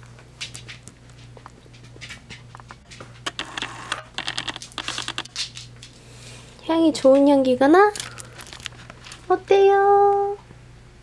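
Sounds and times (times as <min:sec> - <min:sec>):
small clicks and crackles: 0:00.4 - 0:06.0, 0:07.1 - 0:09.3.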